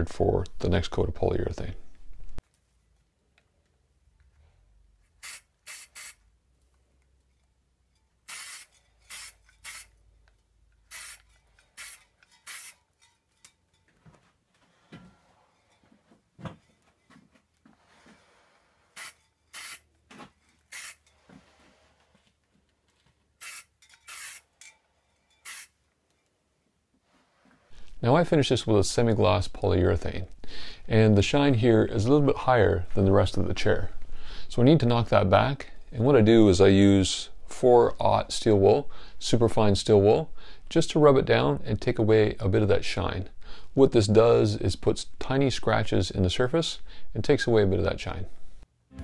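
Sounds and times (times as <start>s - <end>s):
aerosol spray hissing: 5.2s - 6.2s, 8.3s - 9.9s, 10.9s - 12.8s, 19.0s - 19.8s, 20.7s - 21.0s, 23.4s - 24.4s, 25.4s - 25.7s.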